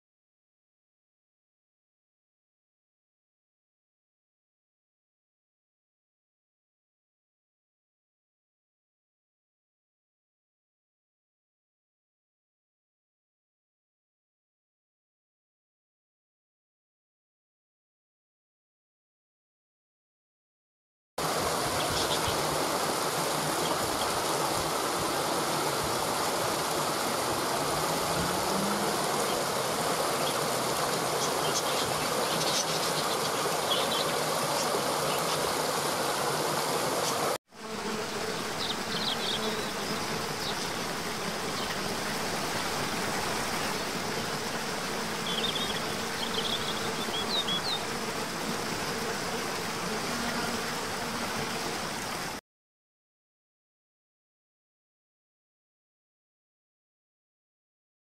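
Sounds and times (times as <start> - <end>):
water rushing over rocks: 21.2 - 37.4.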